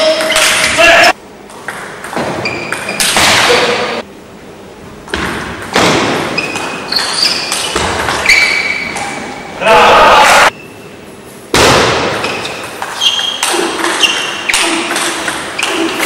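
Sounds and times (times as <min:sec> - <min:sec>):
bursts of hall noise: 0:05.0 - 0:16.0.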